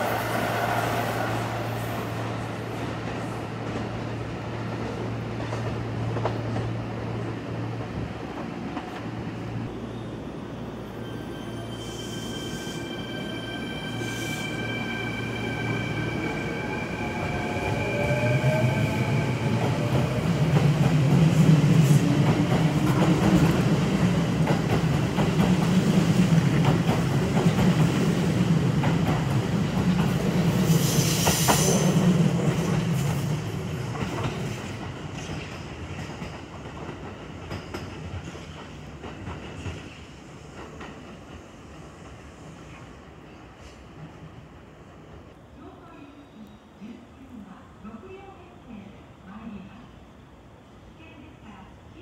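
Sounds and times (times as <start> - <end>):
train wheel screech: 10.9 - 19.6.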